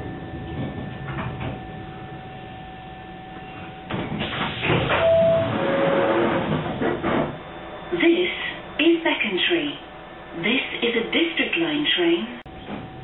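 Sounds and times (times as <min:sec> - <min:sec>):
train humming at platform: 0:00.0 - 0:13.0
train doors closing: 0:00.1 - 0:02.2, 0:03.3 - 0:07.5, 0:12.5 - 0:13.0
two-tone chime: 0:05.0 - 0:05.5.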